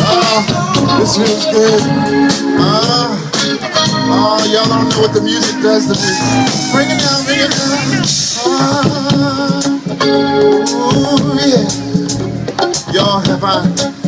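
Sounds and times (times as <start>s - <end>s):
lead vocal singing: 0.0s - 10.0s
live r and b band music: 0.0s - 14.0s.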